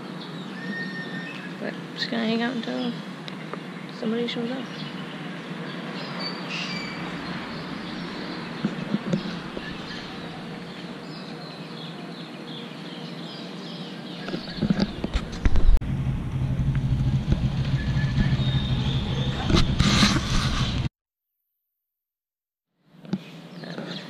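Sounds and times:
outdoor background noise: 0.0 - 20.9, 22.7 - 24.0
loud low thumps and rumble: 15.0 - 20.9.

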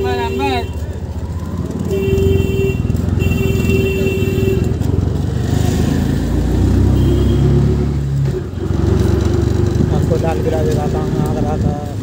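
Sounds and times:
auto-rickshaw engine rattling: 0.0 - 12.0.

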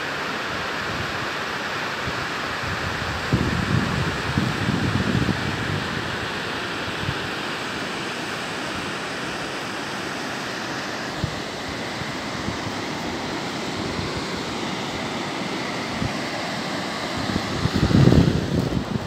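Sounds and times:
mountain stream rushing over rocks: 0.0 - 19.0
wind bumps on microphone: 2.7 - 6.1, 17.2 - 19.0.

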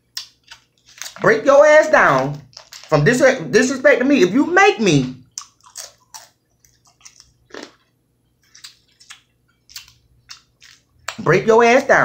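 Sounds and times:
person chewing: 0.0 - 1.4, 2.1 - 3.2, 4.8 - 11.3.

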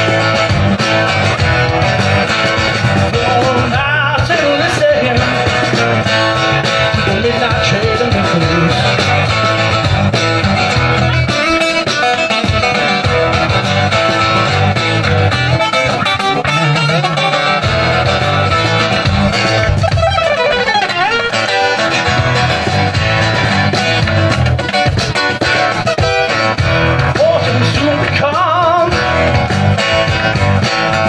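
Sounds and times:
acoustic guitar strummed and picked: 0.0 - 31.0
bass guitar line: 0.0 - 31.0
keyboard: 0.0 - 31.0.

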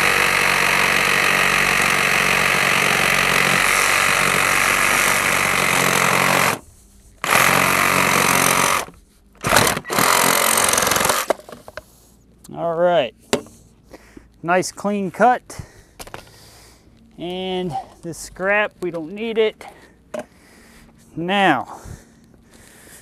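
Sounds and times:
reciprocating saw cutting plastic pipe: 0.0 - 6.6, 7.2 - 11.4.

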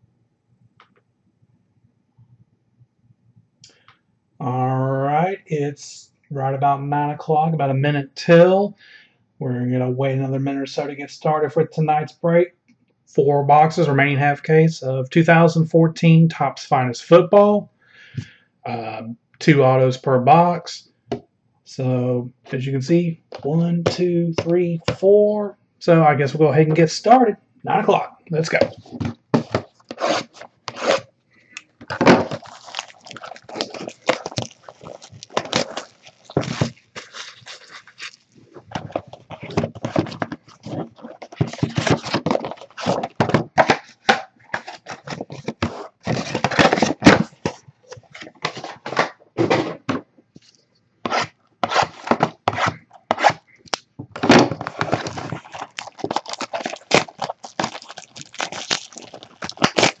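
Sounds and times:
cardboard box crinkling and scraping: 28.4 - 31.1, 31.8 - 49.9, 51.1 - 53.6, 54.2 - 60.0
packaging being torn: 29.5 - 31.1, 31.9 - 49.0, 54.6 - 60.0.

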